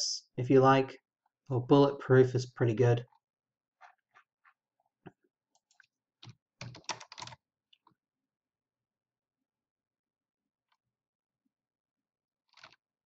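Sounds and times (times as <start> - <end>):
keyboard typing: 6.6 - 7.4.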